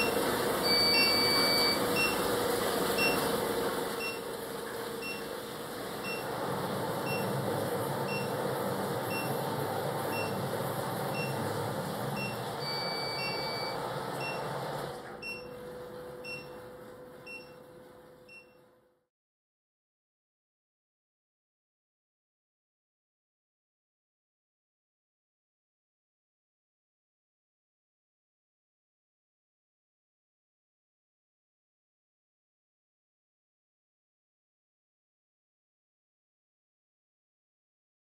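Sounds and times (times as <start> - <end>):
longer electronic beeps: 0.0 - 2.3, 9.1 - 9.4, 10.1 - 10.4, 12.2 - 14.4
short electronic beeps: 0.0 - 2.3, 3.0 - 3.3, 9.1 - 9.4, 10.1 - 10.4, 11.1 - 11.4, 12.2 - 14.4, 16.2 - 16.6
sump pump running: 0.0 - 18.4.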